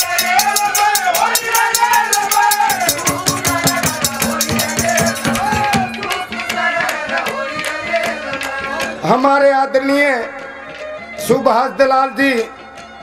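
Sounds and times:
fast rattling percussion beat: 0.0 - 9.3.

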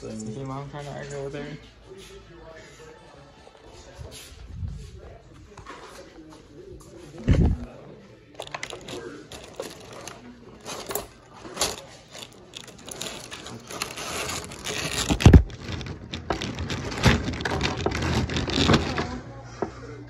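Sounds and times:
plastic packaging crinkling: 8.4 - 18.7.

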